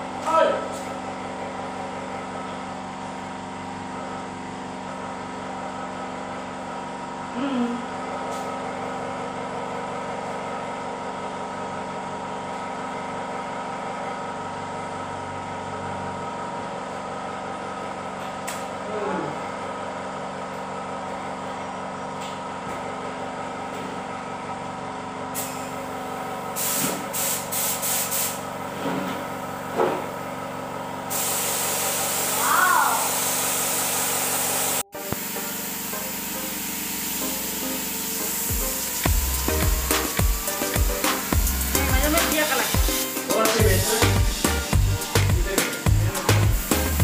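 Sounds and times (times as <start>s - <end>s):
air compressor droning: 0.0s - 47.0s
spray gun air bursts: 25.4s - 25.7s, 26.5s - 28.4s, 31.1s - 47.0s.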